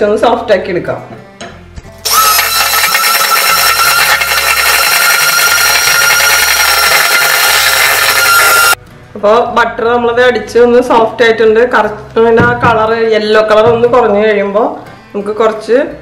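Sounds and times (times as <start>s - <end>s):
electric hand mixer whining: 2.1s - 8.8s.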